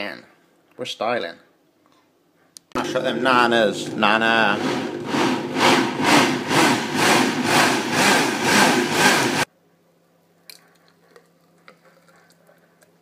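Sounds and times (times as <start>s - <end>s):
blender running at full speed: 2.8s - 9.5s.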